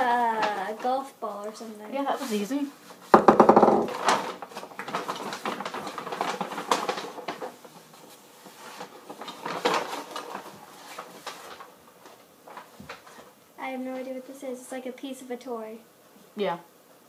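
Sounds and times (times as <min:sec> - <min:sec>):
objects rummaged in a bag: 0:03.8 - 0:13.3.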